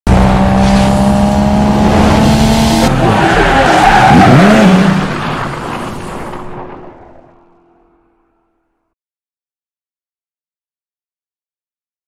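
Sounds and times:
tires squealing: 1.9 - 7.3.

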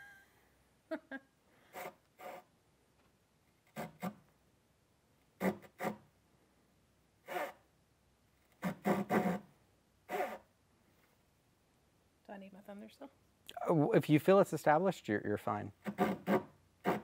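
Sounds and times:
handsaw cutting wood: 1.7 - 2.5, 3.7 - 4.2, 5.4 - 6.1, 7.2 - 7.6, 8.6 - 9.5, 10.1 - 10.5, 15.8 - 17.0.

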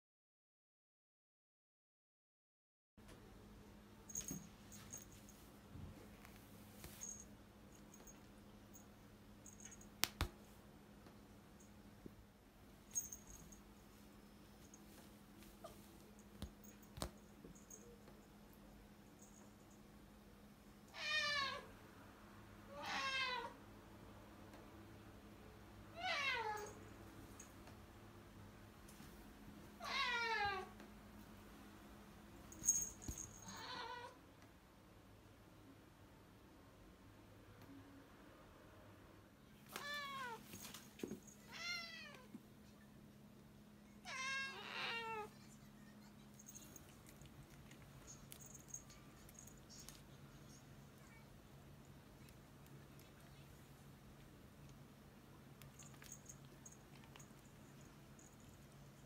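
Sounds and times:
cat meowing: 22.7 - 23.6, 29.8 - 30.7, 33.4 - 34.2, 41.5 - 42.3, 44.0 - 45.3.

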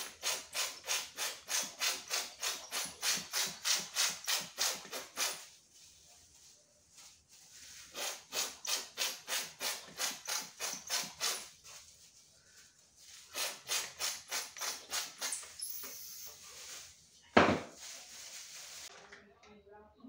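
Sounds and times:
powder sprayer pumping hiss: 0.0 - 5.5, 7.7 - 11.6, 13.1 - 18.9.

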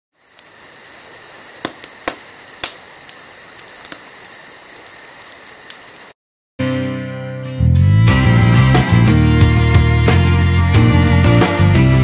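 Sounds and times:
wood fire crackling: 0.2 - 6.1.

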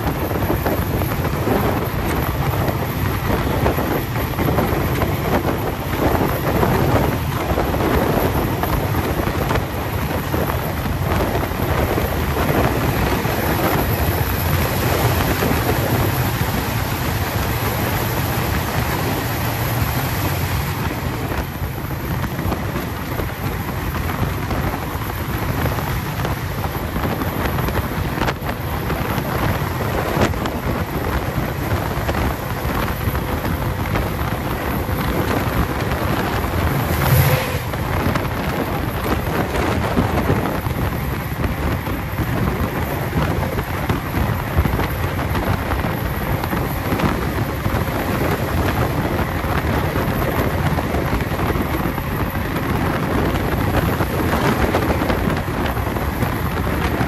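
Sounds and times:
train running noise: 0.0 - 57.0
wind buffeting microphone: 0.0 - 57.0.

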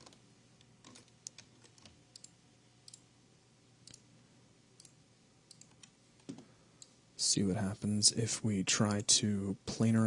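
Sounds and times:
computer mouse clicks: 0.0 - 3.1, 3.8 - 4.0, 4.8 - 7.0.

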